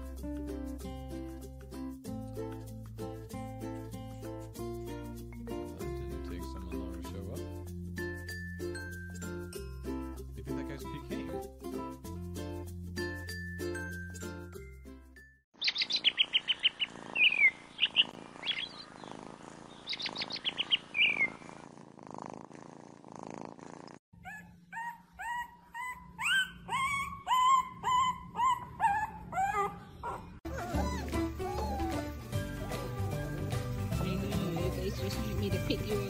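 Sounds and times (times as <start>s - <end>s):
background music: 0.0s - 15.2s, 30.5s - 36.0s
puppy whimpering: 24.2s - 33.3s.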